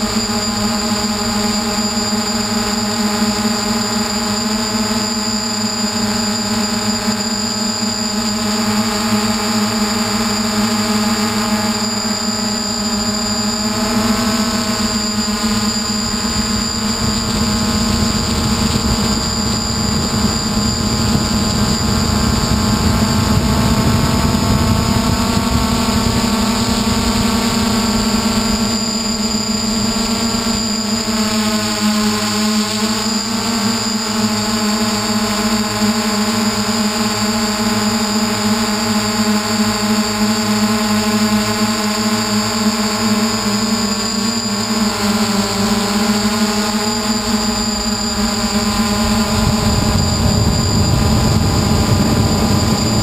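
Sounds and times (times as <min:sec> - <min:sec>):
drone motors whining: 0:00.0 - 0:53.0
rush of air noise: 0:12.1 - 0:31.1, 0:46.6 - 0:53.0.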